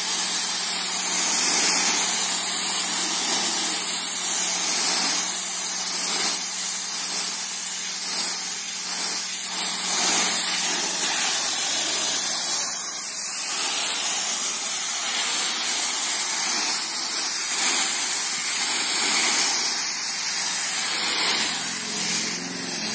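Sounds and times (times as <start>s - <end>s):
pressure washer spraying water: 0.0s - 22.9s.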